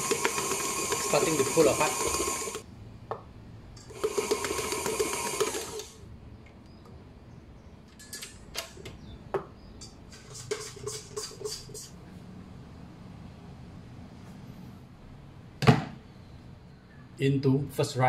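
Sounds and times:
stand mixer kneading dough: 0.0 - 2.6, 4.0 - 5.9.

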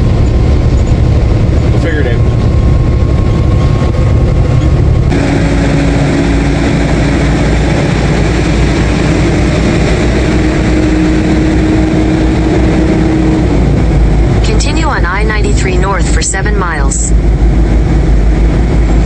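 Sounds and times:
road and wind rush: 0.0 - 19.0
truck engine and road rumble: 0.0 - 19.0.

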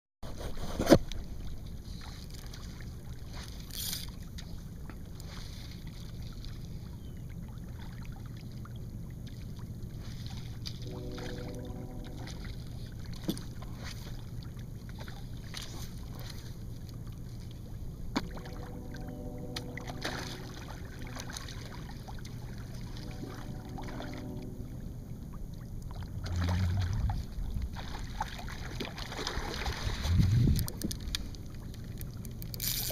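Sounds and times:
wind: 0.2 - 32.9
water lapping against a kayak: 0.3 - 32.9
heavy low rumbling: 10.8 - 13.1, 18.2 - 21.9, 22.5 - 28.0, 29.9 - 31.5
short buzzing tones: 18.3 - 21.4.

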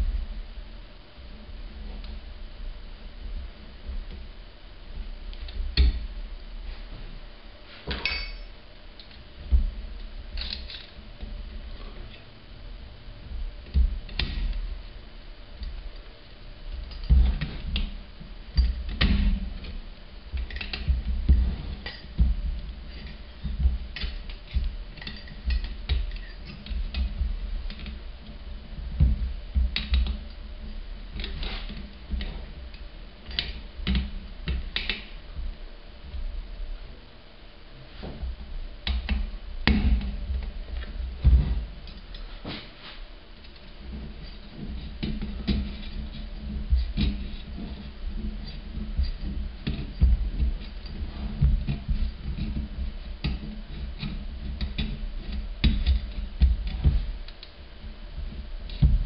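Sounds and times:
metal parts clicking and clinking: 7.9 - 9.1
dull thumps on bench: 58.8 - 59.0.

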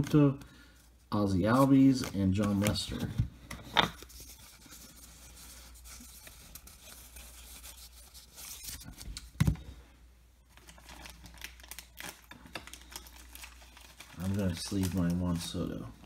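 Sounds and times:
cards sliding and rubbing: 1.4 - 9.4.

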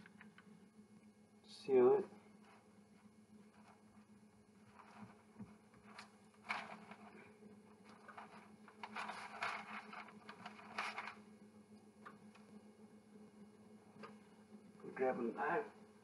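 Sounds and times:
faint low hum: 0.0 - 16.0
parchment paper rustling: 2.2 - 11.3.

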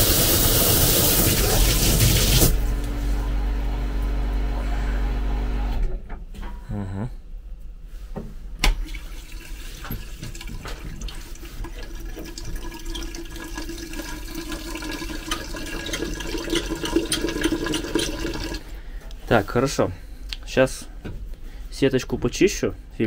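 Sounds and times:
water rushing through pipes: 0.0 - 2.7, 8.8 - 18.7
low hum: 0.5 - 7.8.

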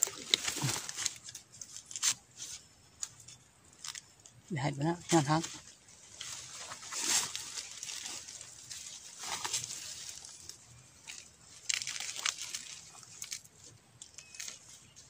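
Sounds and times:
footsteps crunching dry leaves: 5.2 - 13.4.

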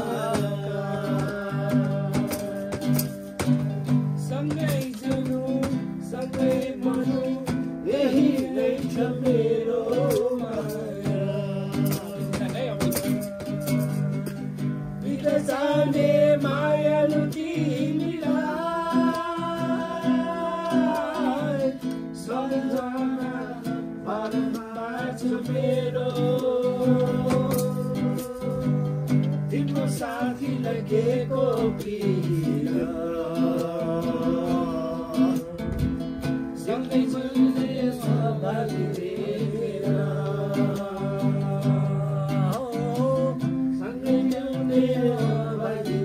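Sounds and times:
percussion beats: 0.0 - 45.7
instrumental accompaniment: 0.0 - 46.0
person singing folk song: 0.0 - 46.0
plucked strings: 0.0 - 46.0.

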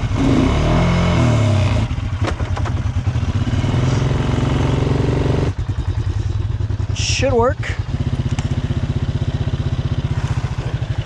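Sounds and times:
vehicle engine running loudly: 0.0 - 11.0
sharp clicks: 8.2 - 8.6.

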